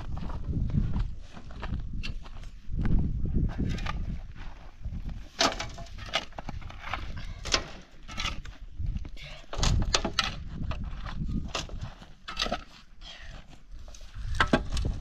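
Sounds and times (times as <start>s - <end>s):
shovels scraping stony soil: 9.5s - 15.0s.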